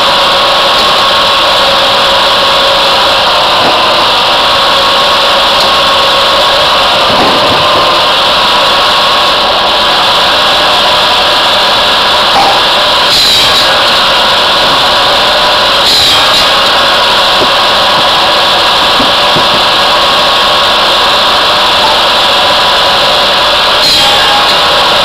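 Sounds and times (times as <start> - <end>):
saw and log splitter din: 0.0 - 25.0.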